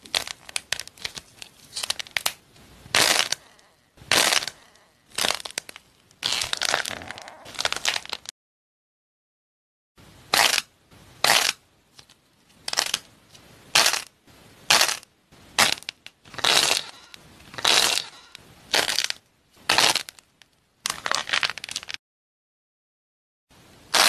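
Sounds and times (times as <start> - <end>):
foil-wrapped sweets crunching: 0.0 - 2.3, 3.0 - 8.3, 18.8 - 20.2, 20.9 - 22.0.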